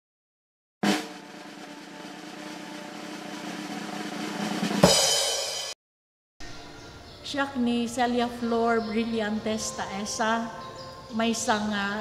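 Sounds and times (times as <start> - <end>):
cymbal crash: 0.8 - 5.8
drum roll: 0.8 - 5.8.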